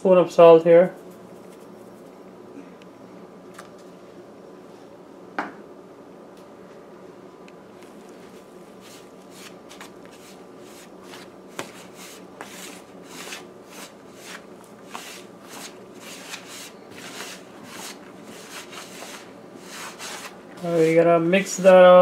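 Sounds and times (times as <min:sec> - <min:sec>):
hands rubbing dough in plastic bowl: 0:08.2 - 0:21.8.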